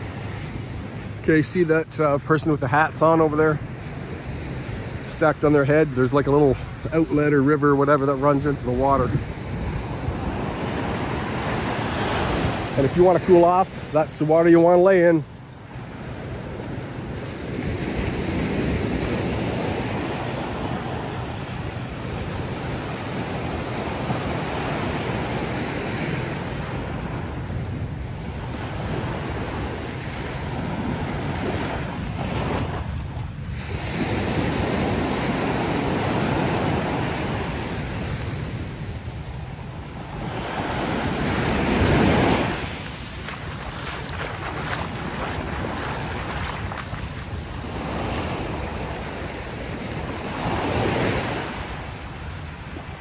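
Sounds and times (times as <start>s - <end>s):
ocean surf washing onto beach: 0.0s - 53.0s
wind buffeting microphone: 3.4s - 53.0s.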